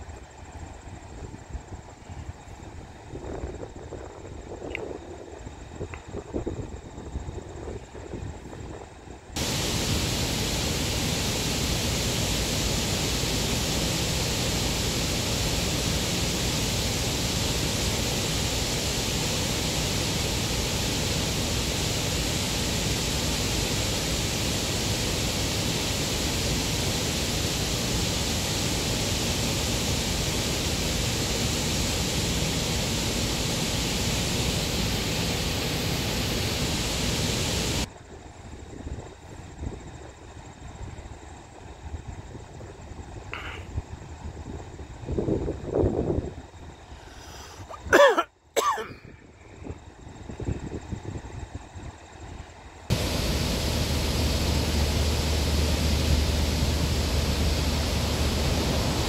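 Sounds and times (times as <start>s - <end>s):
rushing water: 9.4s - 37.9s, 52.9s - 59.0s.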